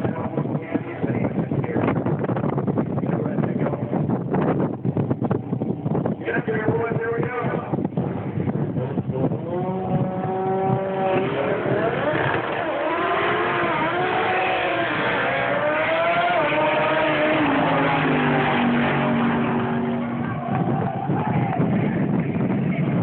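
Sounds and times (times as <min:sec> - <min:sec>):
drag racing cars accelerating: 0:08.0 - 0:23.0.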